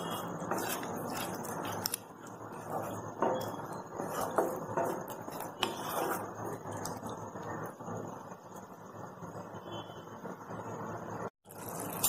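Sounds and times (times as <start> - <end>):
wooden spatula scraping a pan: 0.0 - 1.8, 2.4 - 7.0.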